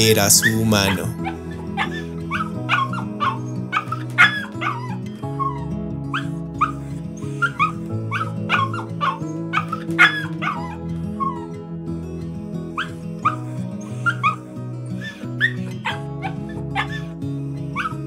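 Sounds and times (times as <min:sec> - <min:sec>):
background music with held notes: 0:00.0 - 0:18.0
small dog yipping and whining: 0:01.2 - 0:11.5, 0:12.8 - 0:14.4, 0:15.0 - 0:17.1, 0:17.8 - 0:18.0.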